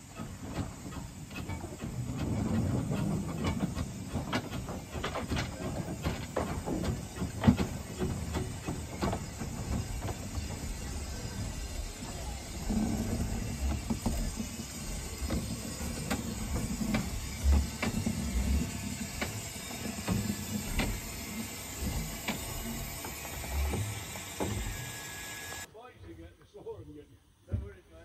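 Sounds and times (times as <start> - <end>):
steam hissing: 0.0 - 25.7
wheels clicking over rail joints: 0.0 - 25.7.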